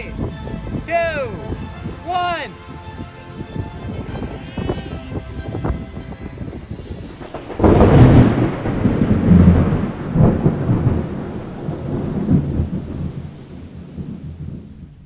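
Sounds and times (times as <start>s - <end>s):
thunder rumbling: 3.4s - 15.0s
thunder clap: 7.0s - 15.0s.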